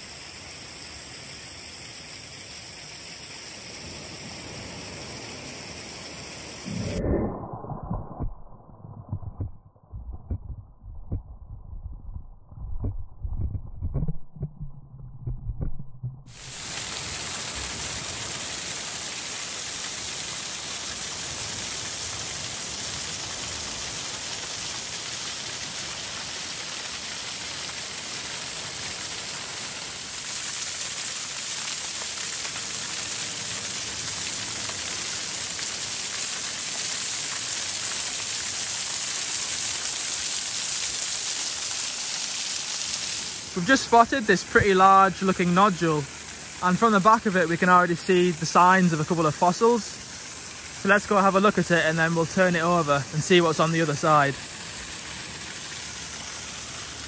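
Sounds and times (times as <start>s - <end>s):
waterfall splashing onto stones: 0.0s - 6.7s, 16.3s - 57.0s
low thumps: 6.7s - 16.3s.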